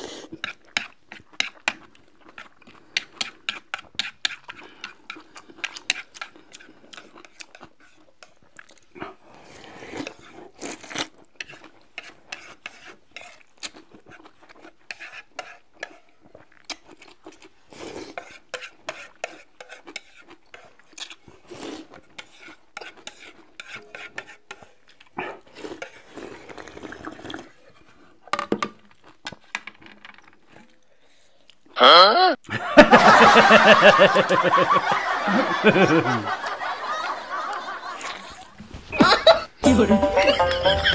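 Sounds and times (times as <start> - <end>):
noodles being slurped: 0.0 - 28.2, 37.8 - 38.6.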